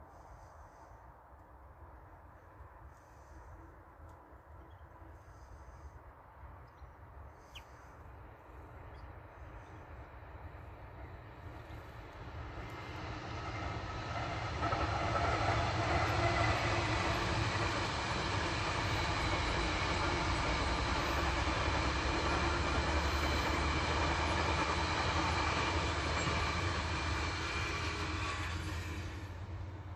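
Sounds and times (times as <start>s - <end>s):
freight train passing: 1.8s - 29.9s
wheel and rail noise: 7.7s - 29.9s.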